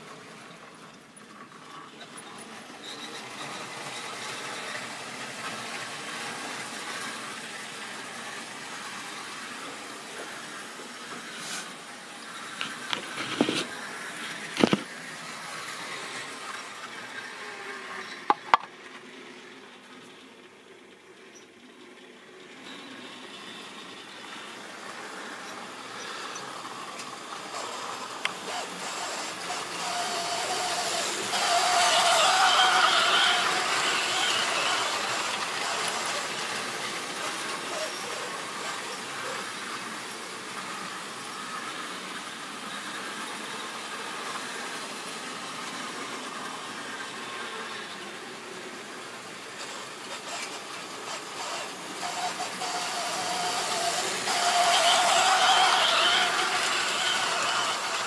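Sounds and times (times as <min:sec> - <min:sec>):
model train rumbling whirr: 0:00.0 - 0:58.0.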